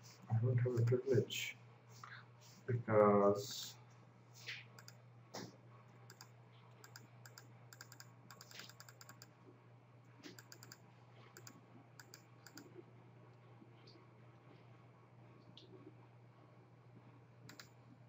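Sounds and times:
faint typing on a keyboard: 0.0s - 1.2s, 3.8s - 9.4s, 10.1s - 14.7s, 17.4s - 17.9s.

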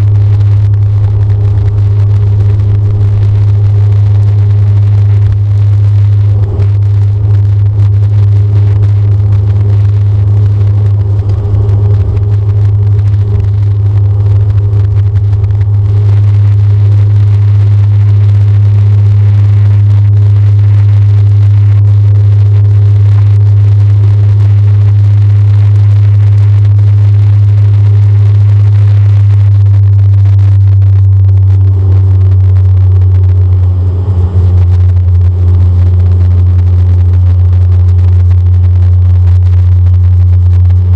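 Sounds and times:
runway rumbling: 0.0s - 21.7s
loud propeller drone: 0.0s - 40.9s.

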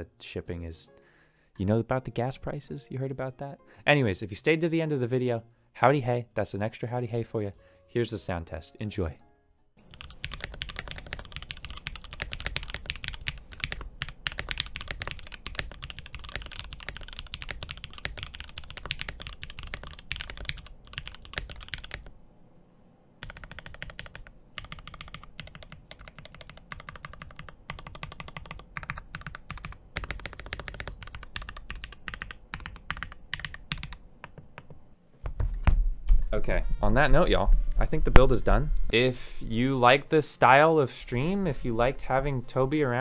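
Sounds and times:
fast typing on mechanical keyboard: 9.9s - 22.1s, 23.2s - 34.7s.

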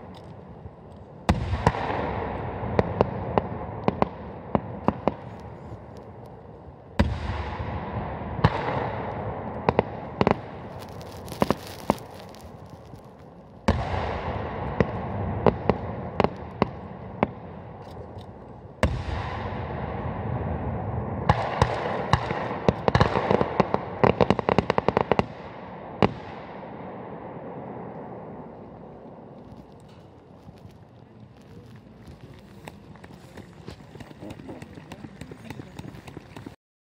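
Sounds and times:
firework cracks: 0.0s - 36.6s
firework booms: 0.7s - 17.8s, 18.6s - 32.8s
rapid crackling pops: 9.6s - 20.0s, 21.3s - 26.8s, 27.8s - 36.6s.

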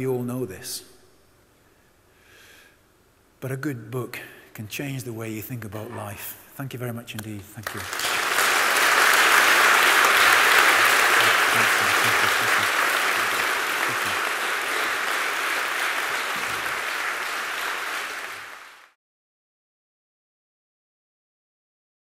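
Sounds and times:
large audience applauding: 7.6s - 19.0s.

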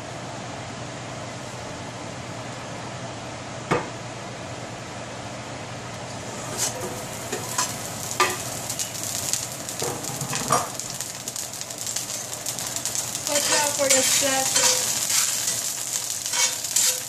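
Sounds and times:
garlic sizzling in oil: 6.1s - 17.0s.

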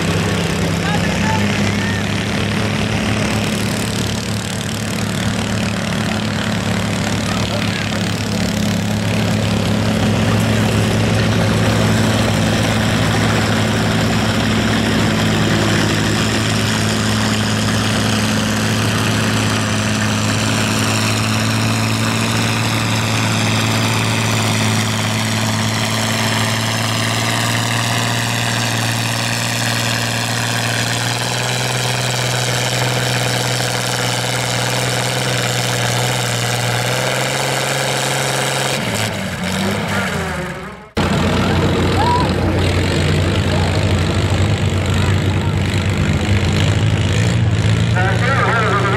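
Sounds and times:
tractor engine under load: 0.0s - 48.9s.

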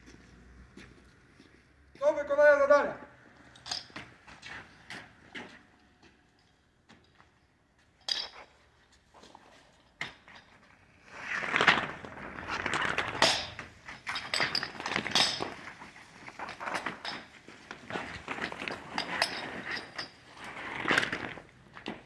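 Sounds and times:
metal couplings striking stones: 3.5s - 4.1s, 13.2s - 15.6s
hose slapping and scraping ground: 8.4s - 22.0s.

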